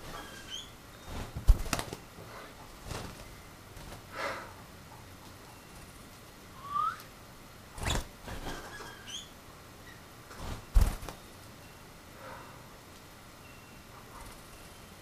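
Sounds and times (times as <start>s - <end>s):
faint bird chirps: 0.0s - 1.2s, 6.5s - 7.1s, 8.6s - 10.1s, 13.4s - 15.0s.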